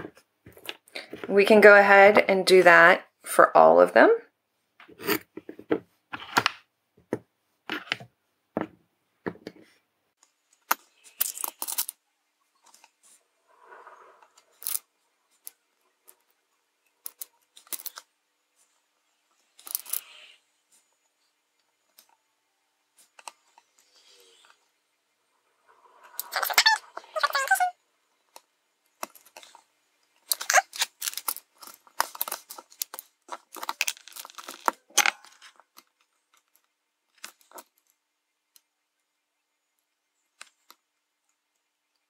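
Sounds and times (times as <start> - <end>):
plastic pens set down: 30.2 - 35.9.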